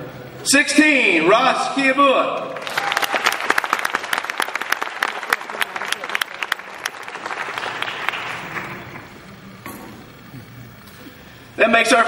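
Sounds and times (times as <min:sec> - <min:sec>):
audience applauding: 0:02.6 - 0:10.6.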